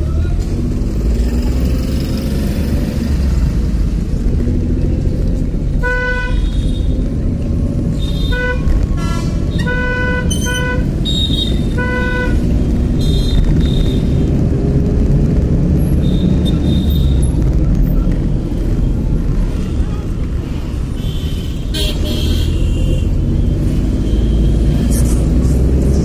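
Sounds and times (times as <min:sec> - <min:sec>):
car horn honking: 0:08.0 - 0:14.1, 0:20.9 - 0:23.1.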